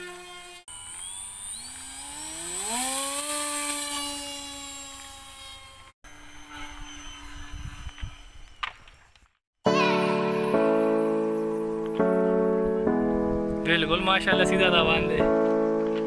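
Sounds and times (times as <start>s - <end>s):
model airplane motor whining: 0.0s - 9.2s.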